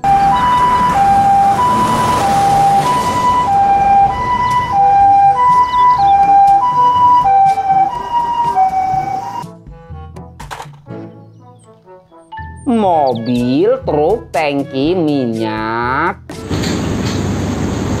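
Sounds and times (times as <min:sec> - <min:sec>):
traffic noise: 0:00.0 - 0:09.4, 0:12.4 - 0:18.0
two-tone ambulance siren: 0:00.0 - 0:09.5.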